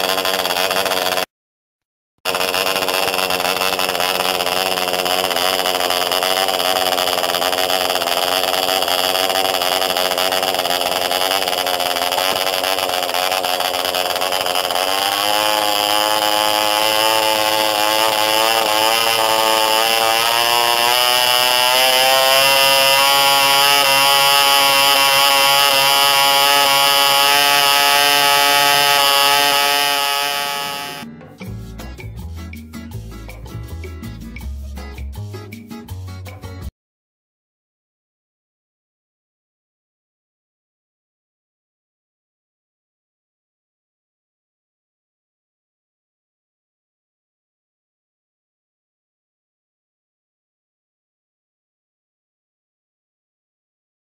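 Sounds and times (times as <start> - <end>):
model airplane engine whining: 0.0 - 1.3, 2.3 - 31.0.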